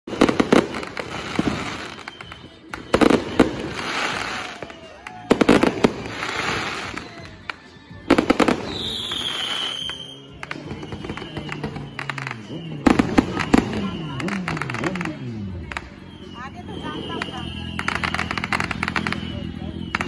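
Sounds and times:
fireworks crackling hiss: 0.1 - 15.8, 16.6 - 20.0
fireworks bangs: 0.1 - 20.0
high falling whistle: 8.6 - 14.4.

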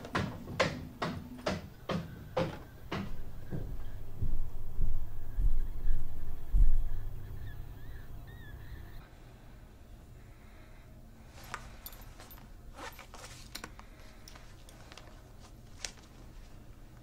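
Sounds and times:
steady low hum: 0.0 - 17.0
faint clicks and rustles: 11.2 - 17.0.

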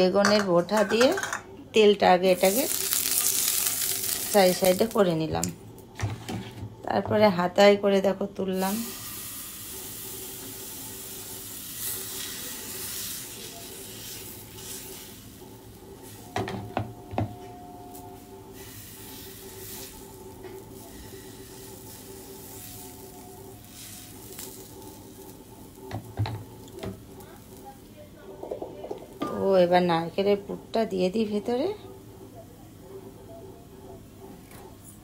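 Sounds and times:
batter sizzling in frying pan: 2.3 - 5.1, 8.6 - 16.6, 17.9 - 27.8.

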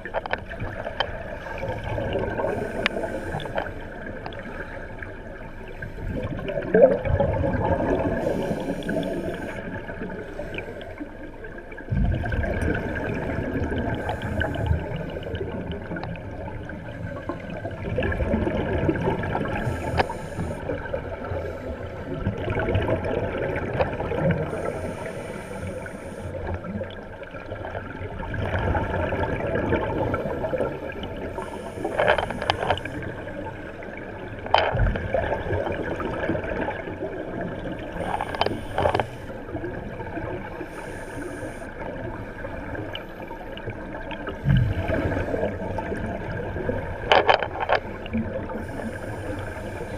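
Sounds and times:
underwater water noise: 0.0 - 49.9
diver exhaust bubbling: 44.3 - 49.0.

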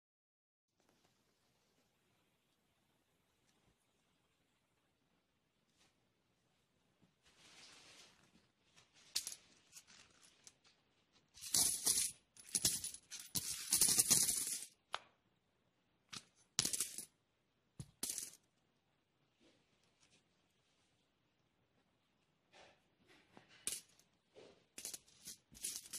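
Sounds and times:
coin purse rustling: 8.9 - 14.8, 24.8 - 25.9
coins clinking and jingling: 11.4 - 14.7, 16.6 - 17.1, 24.8 - 25.9.

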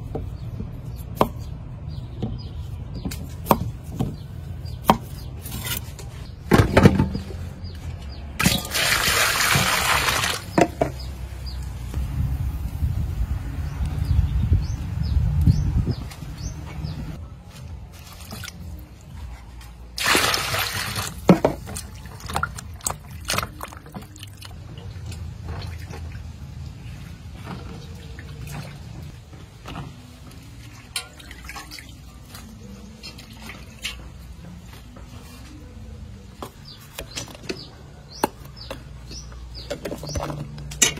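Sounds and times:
water splashing and dripping: 8.4 - 11.8, 17.9 - 19.1, 20.0 - 34.4.

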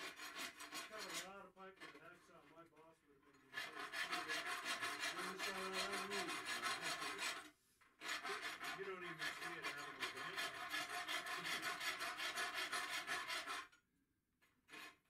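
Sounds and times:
hand tool rasping on steel: 0.0 - 2.6, 3.2 - 13.8, 14.7 - 15.0.

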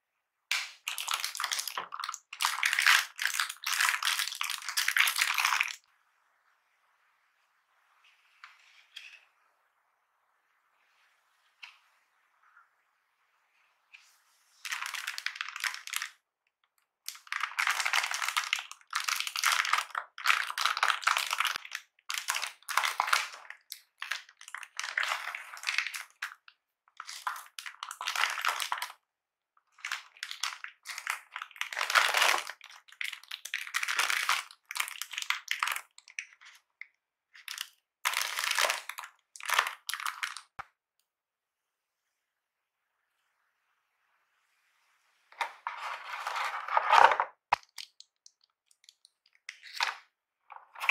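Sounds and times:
plastic wrap crinkling: 29.8 - 36.3, 45.8 - 50.9.

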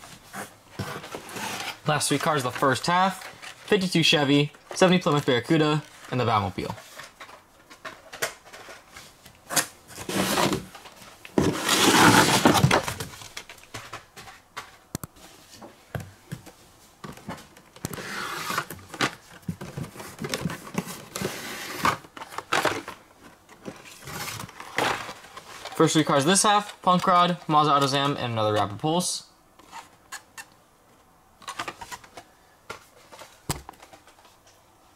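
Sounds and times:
toy car packaging rustling: 0.8 - 14.9, 17.8 - 28.7.

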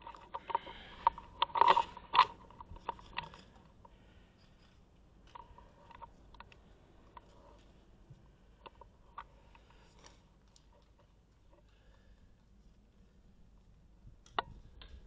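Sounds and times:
gear handling clicks and scrapes: 0.0 - 12.0.

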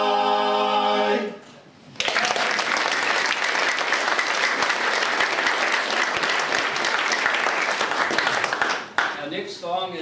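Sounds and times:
audience applauding: 2.0 - 9.2.

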